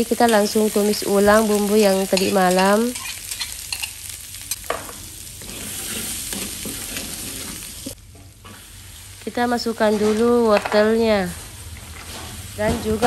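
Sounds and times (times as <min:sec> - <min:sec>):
paste sizzling in oil: 0:00.0 - 0:13.0
metal spatula scraping wok: 0:01.3 - 0:04.0, 0:05.4 - 0:08.8, 0:09.6 - 0:10.9.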